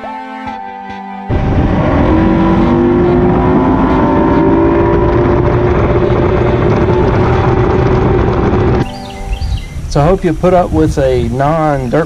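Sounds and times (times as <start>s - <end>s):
water rushing: 1.3s - 8.8s
outboard engine running: 1.3s - 9.0s
wind rushing: 1.3s - 11.4s.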